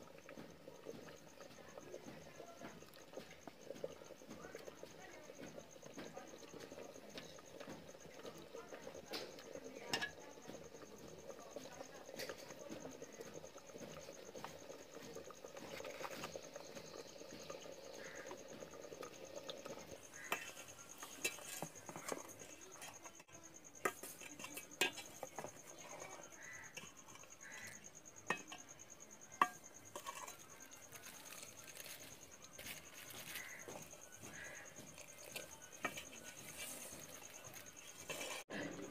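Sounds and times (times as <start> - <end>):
ladle stirring in metal pot: 0.0 - 38.9
ladle knocking against pot: 23.8 - 30.4.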